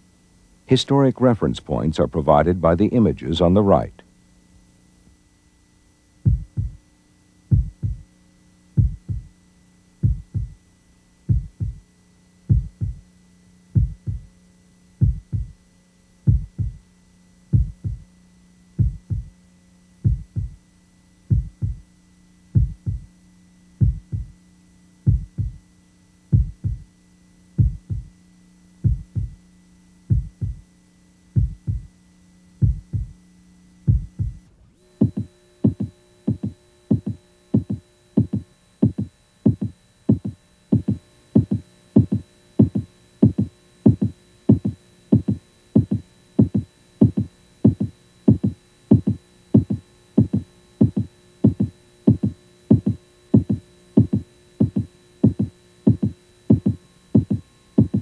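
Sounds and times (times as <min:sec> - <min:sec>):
steady electronic hum: 0:00.0 - 0:58.0
deep rhythmic thumps: 0:06.2 - 0:06.8, 0:07.5 - 0:08.1, 0:08.7 - 0:09.3, 0:10.0 - 0:10.6, 0:11.3 - 0:13.1, 0:13.7 - 0:14.3, 0:15.0 - 0:15.6, 0:16.2 - 0:16.8, 0:17.5 - 0:18.1, 0:18.8 - 0:19.4, 0:20.0 - 0:20.6, 0:21.2 - 0:21.9, 0:22.6 - 0:23.1, 0:23.8 - 0:24.4, 0:25.0 - 0:25.6, 0:26.3 - 0:26.9, 0:27.6 - 0:28.1, 0:28.8 - 0:29.4, 0:30.0 - 0:30.7, 0:31.4 - 0:31.9, 0:32.6 - 0:33.2, 0:33.9 - 0:58.0.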